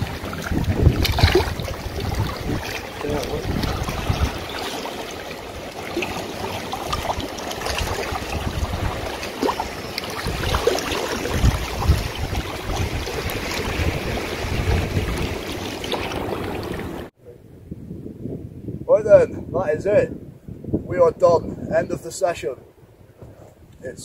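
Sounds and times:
sea water lapping over rocks: 0.0 - 17.1
wind buffeting microphone: 0.0 - 24.0.

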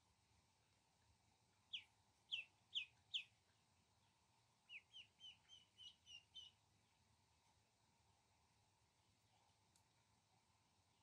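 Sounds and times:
ducklings peeping: 1.6 - 6.6.

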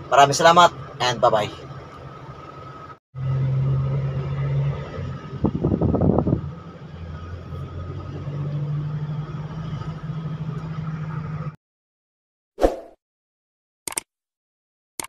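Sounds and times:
vehicle engine humming: 0.0 - 11.6.

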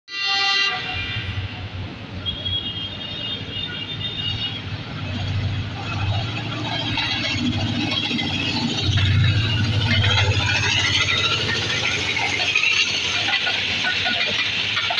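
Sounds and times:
train horn blast: 0.1 - 1.6
diesel engine rumble: 4.8 - 14.9
wheel-on-rail clatter: 6.0 - 14.9.

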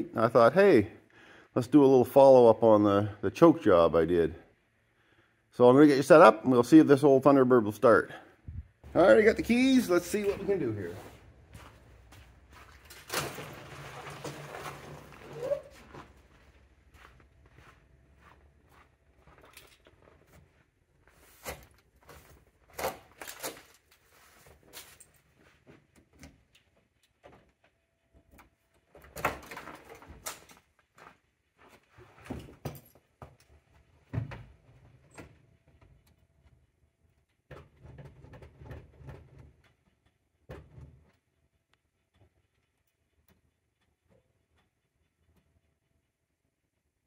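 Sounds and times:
footsteps in snow: 8.9 - 13.0.

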